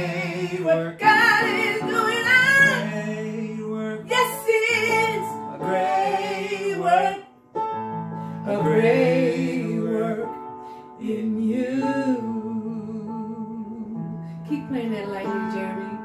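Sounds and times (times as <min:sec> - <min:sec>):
woman singing with vibrato: 0:00.5 - 0:03.2, 0:03.8 - 0:07.2.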